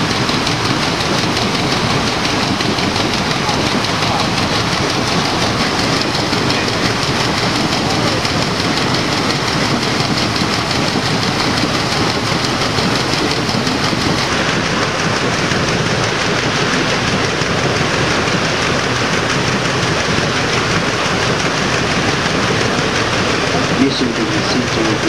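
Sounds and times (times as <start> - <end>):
boat machinery running: 0.0 - 25.0
paddle wheel churning water: 0.0 - 25.0.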